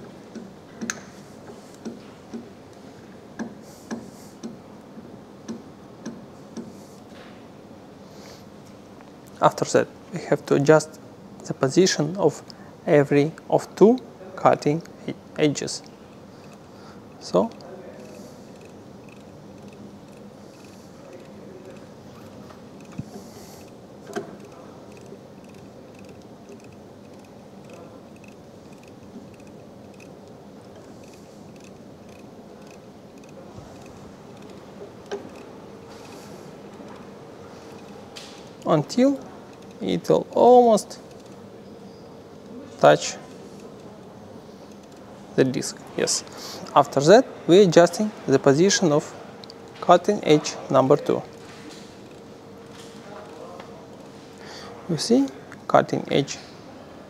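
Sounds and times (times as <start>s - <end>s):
faint steady hum: 0.0s - 57.0s
lathe feed handle clicking: 0.3s - 1.1s
small clicks of lathe adjuster: 0.3s - 2.5s, 3.4s - 4.6s, 5.5s - 6.7s.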